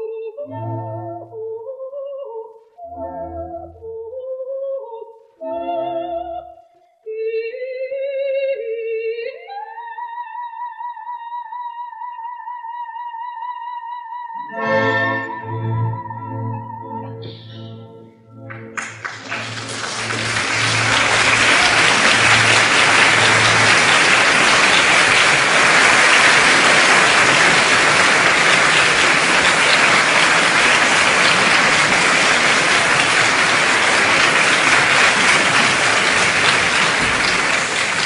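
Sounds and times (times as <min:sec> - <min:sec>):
audience applauding: 0:18.4 - 0:38.0.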